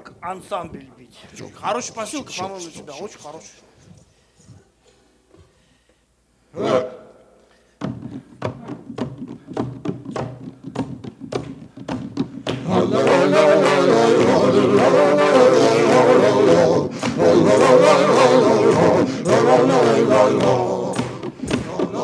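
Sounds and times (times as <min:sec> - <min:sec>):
voices singing: 0:06.5 - 0:07.3, 0:12.5 - 0:22.0
hand drum beating: 0:07.8 - 0:12.7.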